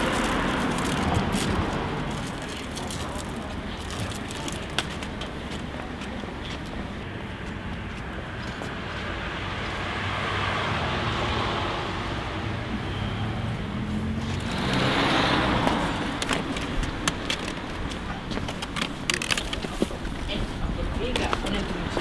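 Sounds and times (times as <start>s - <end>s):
steady traffic rumble: 0.0s - 22.0s
car passing: 6.8s - 18.2s.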